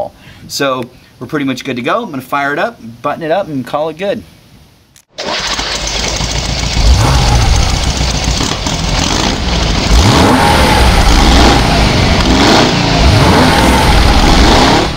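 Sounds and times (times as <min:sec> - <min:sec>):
vehicle engine revving: 0:06.2 - 0:14.9.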